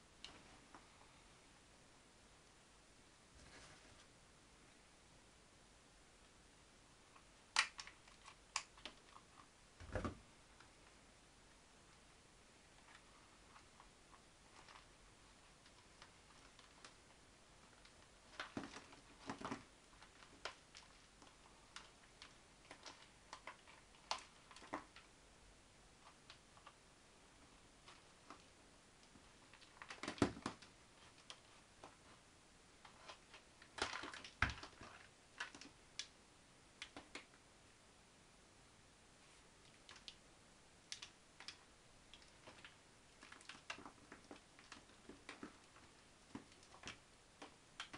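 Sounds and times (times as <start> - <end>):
plastic pot clicks and crackles: 7.2 - 10.7, 17.7 - 25.1, 27.8 - 32.1, 32.8 - 36.2, 36.8 - 37.4, 39.6 - 40.2, 40.9 - 47.9
plastic crinkling: 17.6 - 25.1, 32.8 - 35.8, 40.9 - 47.9.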